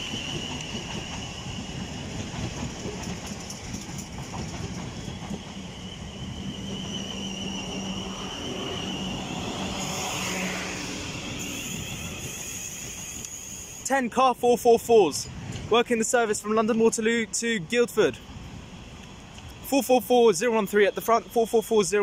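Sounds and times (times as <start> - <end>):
wheels clicking over rail joints: 0.0 - 5.7
electric train whine: 0.0 - 13.9, 18.2 - 21.8
train wheel and track noise: 0.0 - 22.0.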